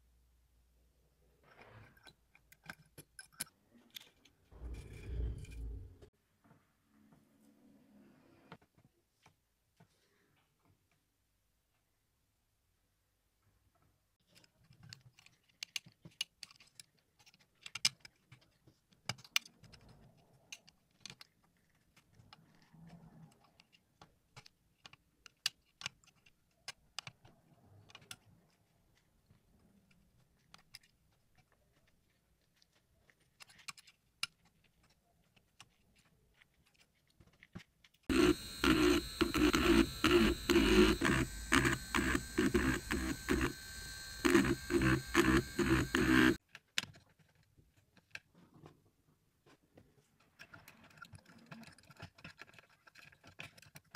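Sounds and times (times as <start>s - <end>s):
metal pick scratching speaker grille: 38.1s - 46.4s.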